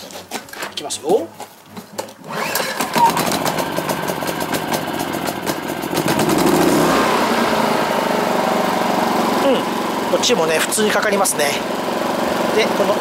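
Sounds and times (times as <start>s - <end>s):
generator engine running: 1.7s - 13.0s
recoil starter pull: 1.8s - 6.7s.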